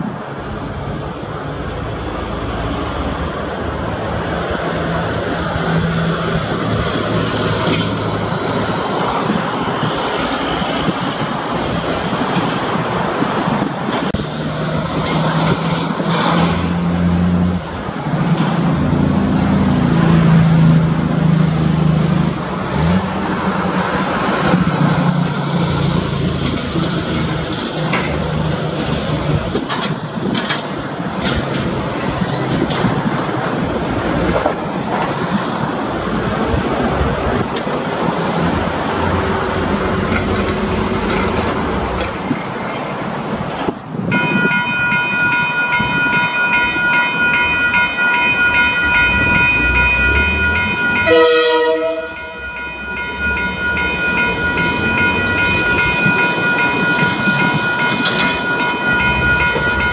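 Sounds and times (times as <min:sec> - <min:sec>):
tyres on the road: 0:00.0 - 0:59.9
cars driving past: 0:31.4 - 0:59.9.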